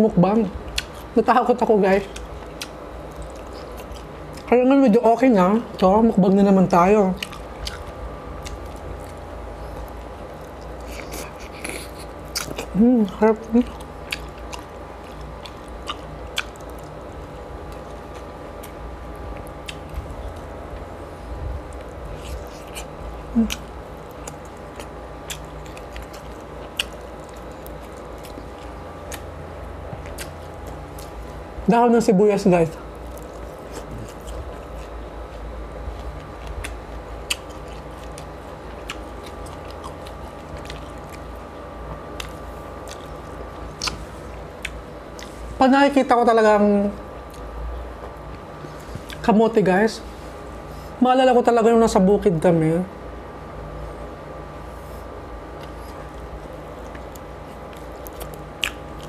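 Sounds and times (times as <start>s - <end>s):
steady low hum: 0.0s - 59.0s
person chewing food: 0.6s - 1.2s, 1.9s - 4.6s, 7.1s - 31.6s, 32.8s - 45.5s, 47.2s - 49.2s, 54.7s - 59.0s
mouth clicks and smacks: 42.2s - 44.0s
wet mouth clicks and smacks: 43.7s - 44.0s.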